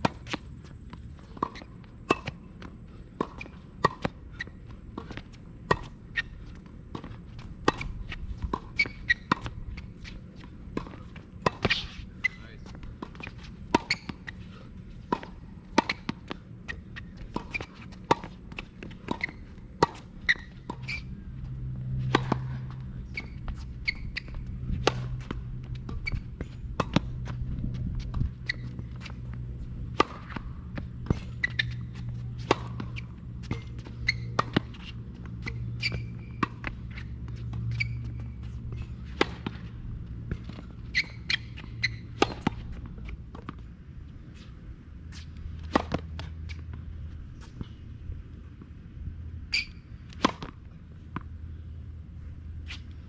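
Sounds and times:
shoes on court: 0.0s - 48.8s
low steady rumble: 0.0s - 53.0s
racket striking ball: 15.0s - 43.6s, 45.6s - 46.3s, 49.6s - 50.6s
ball bouncing on court: 15.1s - 38.3s.

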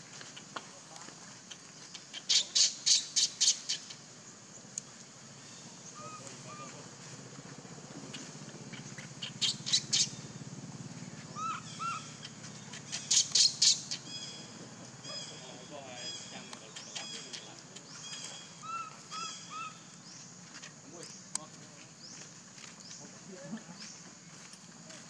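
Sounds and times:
shrill animal squawks: 11.4s - 12.2s.

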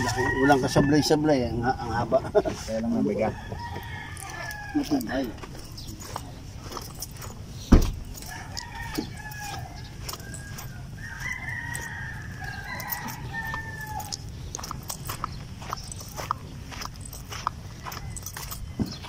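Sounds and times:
roosters crowing: 0.0s - 19.0s
sharp thump: 7.7s - 8.0s.

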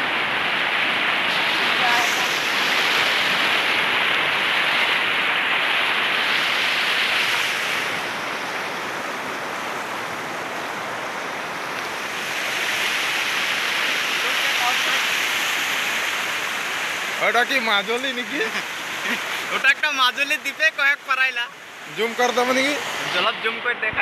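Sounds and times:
floodwater rushing across road: 0.0s - 24.0s.

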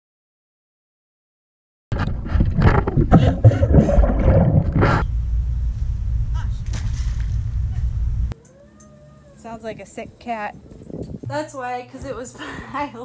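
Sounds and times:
wind buffeting microphone: 9.7s - 12.8s.

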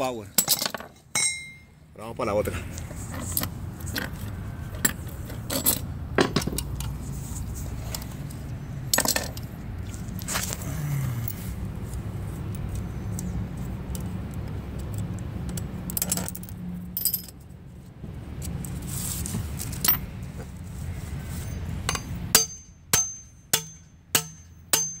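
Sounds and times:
metal-on-metal strikes ringing: 1.1s - 1.7s, 21.9s - 25.0s
handling clicks and rustle: 2.7s - 17.4s.

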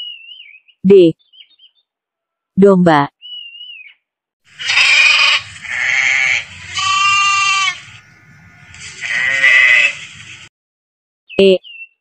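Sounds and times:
sheep bleating: 4.5s - 10.2s.

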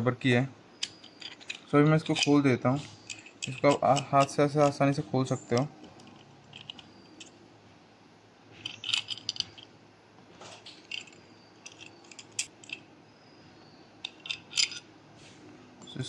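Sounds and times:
small metal bolt set down: 0.8s - 2.4s, 8.6s - 9.7s, 14.0s - 14.8s.

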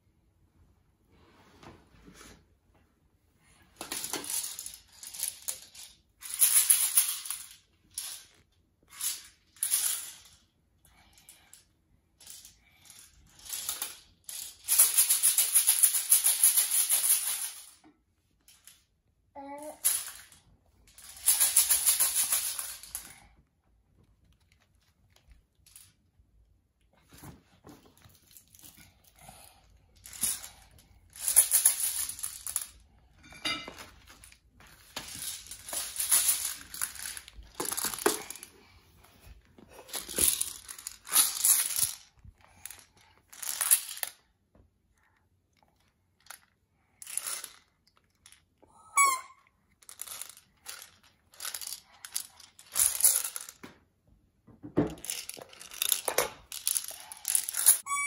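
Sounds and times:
baby rattle shaken: 3.8s - 10.4s, 12.2s - 17.8s, 19.5s - 23.1s, 28.2s - 32.8s, 34.8s - 38.5s, 39.7s - 44.2s, 49.8s - 53.6s, 54.9s - 58.0s.

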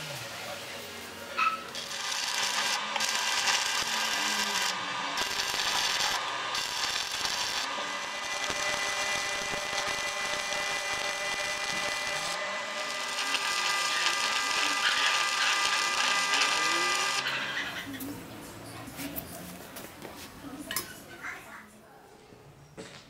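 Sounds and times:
welding arc crackling and hissing: 1.7s - 17.3s.

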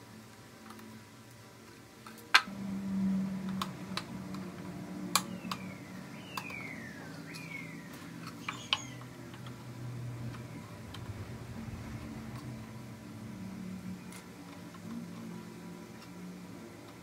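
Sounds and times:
low hum: 2.5s - 17.0s.

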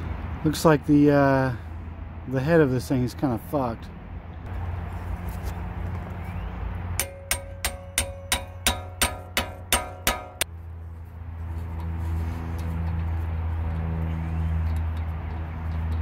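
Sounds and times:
hammer striking metal driver: 7.0s - 10.5s.

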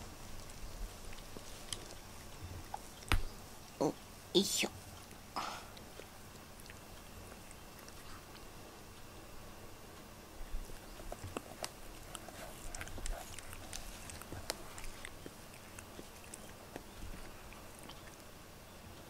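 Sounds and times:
cat licking its fur: 0.1s - 3.0s, 4.9s - 8.8s, 10.5s - 18.3s.

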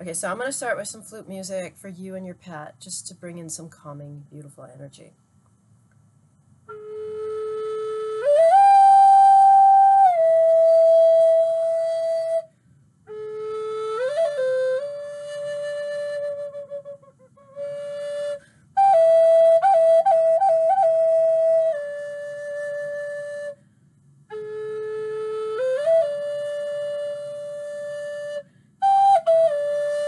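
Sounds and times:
wooden flute melody: 6.7s - 23.7s, 24.3s - 30.0s.

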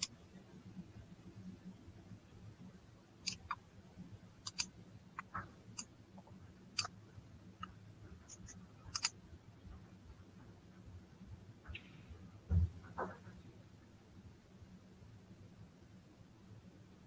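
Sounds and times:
low steady hum: 0.0s - 17.0s
faint small clicks: 3.2s - 3.6s, 4.4s - 7.0s, 7.6s - 9.2s.

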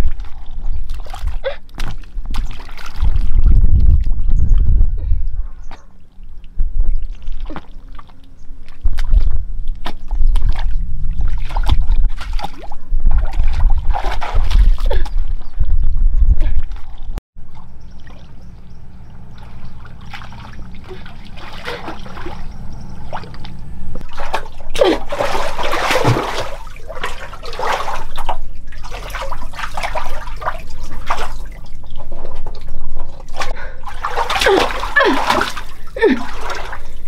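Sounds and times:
water trickling and splashing: 0.0s - 4.2s, 6.1s - 15.5s, 16.5s - 37.0s.

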